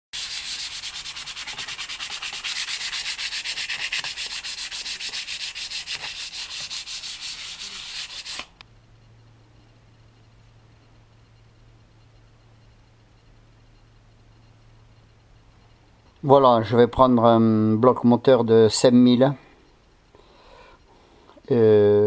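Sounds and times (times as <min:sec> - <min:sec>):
rhythmic back-and-forth scraping: 0:00.2 - 0:08.6
faint low hum: 0:00.2 - 0:22.0.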